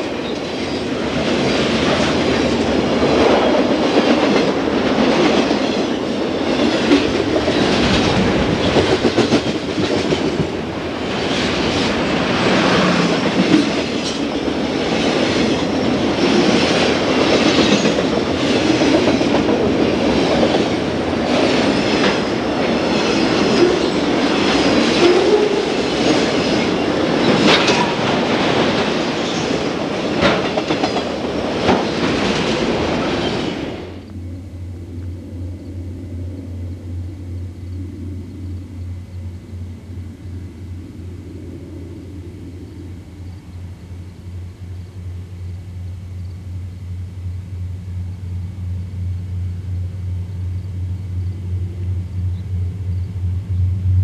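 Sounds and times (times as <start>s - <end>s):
train wheels clacking: 0.0s - 34.1s
freight train rumbling past: 0.0s - 54.0s.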